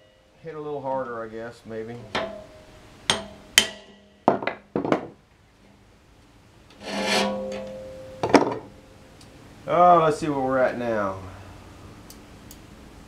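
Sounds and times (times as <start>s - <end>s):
rasping scrape: 6.8s - 7.8s
hammer blows on metal: 6.8s - 8.8s.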